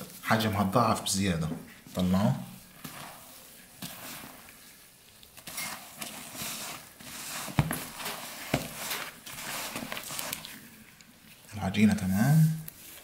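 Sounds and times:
dough squelching: 1.2s - 13.0s.

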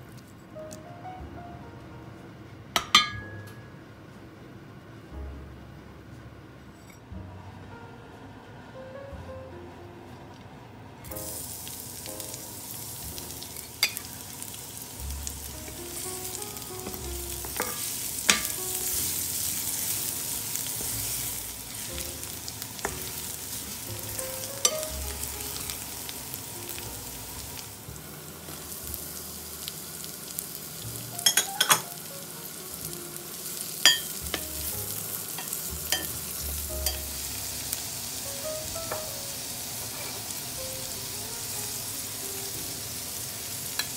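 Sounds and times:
metal spoon clinking on pan: 2.8s - 3.4s, 13.8s - 14.0s, 31.2s - 31.9s, 33.8s - 34.4s, 35.4s - 36.2s, 36.8s - 37.0s
garlic and onion sizzling: 11.0s - 43.9s.

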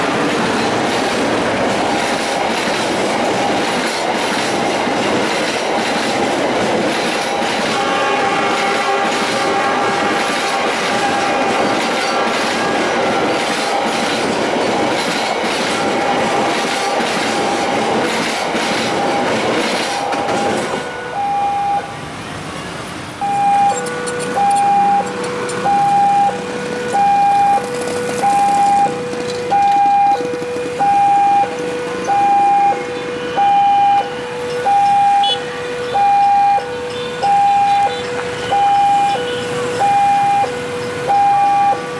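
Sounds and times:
train rumbling and rattling past: 0.0s - 41.9s
two-tone level crossing alarm: 18.8s - 21.9s, 23.2s - 41.9s.

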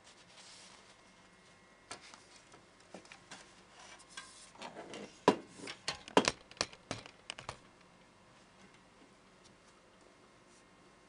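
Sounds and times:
sharp clicks and knocks: 5.7s - 7.9s.

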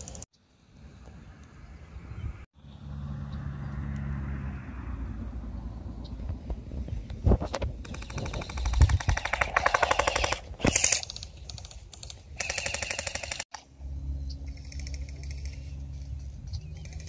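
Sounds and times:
airsoft rifle bursts: 7.9s - 13.5s.

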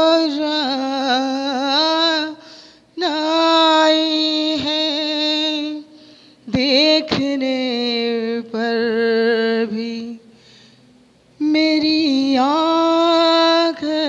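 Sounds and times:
woman singing unaccompanied: 0.0s - 2.4s, 3.0s - 5.9s, 6.5s - 10.2s, 11.4s - 14.0s
singer breathing: 2.4s - 3.0s, 5.9s - 6.5s, 10.3s - 11.1s.

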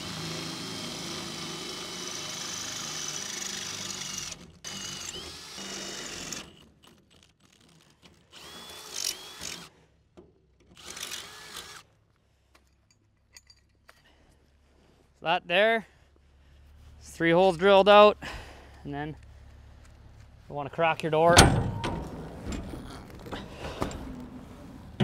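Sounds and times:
cordless drill boring through steel: 0.0s - 6.6s, 8.3s - 9.7s, 10.8s - 11.8s.

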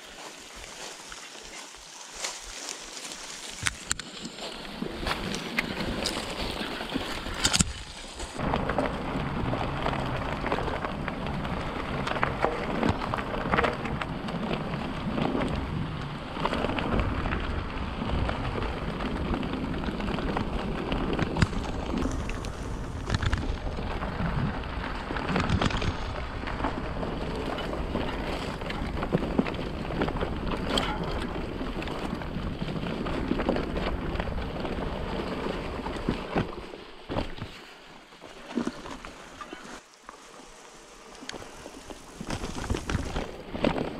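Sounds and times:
tyres rolling over leaves and dirt: 0.0s - 43.9s
wind rumbling on microphone: 2.4s - 37.6s, 40.5s - 43.9s
bike chain and frame rattling: 3.5s - 36.1s.

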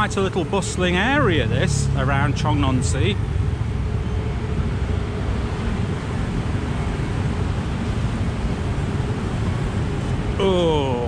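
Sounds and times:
city road traffic: 0.0s - 11.0s.

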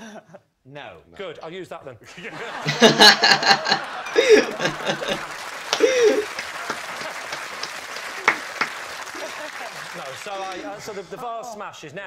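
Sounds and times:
audience laughing: 2.1s - 11.3s
audience applauding: 2.2s - 11.3s.

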